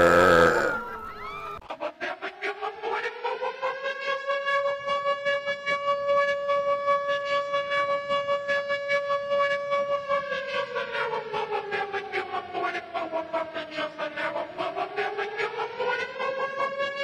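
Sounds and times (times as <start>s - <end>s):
siren-like wailing tone: 0.0s - 1.6s.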